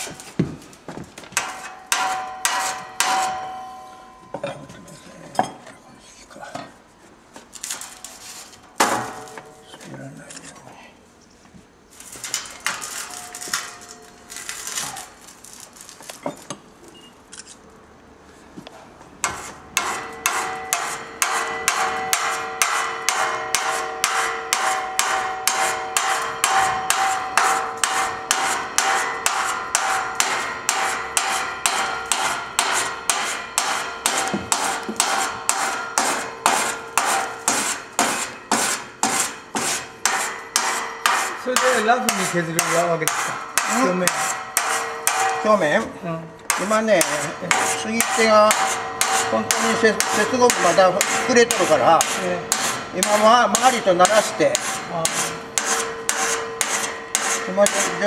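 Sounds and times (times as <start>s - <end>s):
file strokes on ringing steel blade: 19.2s - 45.6s, 46.6s - 58.0s.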